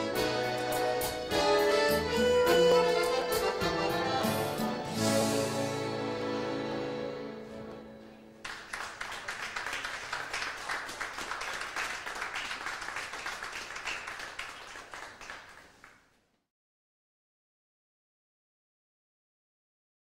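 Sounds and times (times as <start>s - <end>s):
accordion chord: 0.0s - 8.4s
audience applauding: 8.4s - 16.1s.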